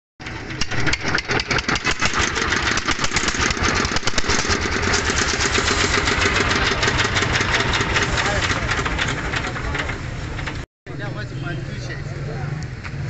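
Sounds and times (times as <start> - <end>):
diesel engine knocking: 0.2 - 10.6.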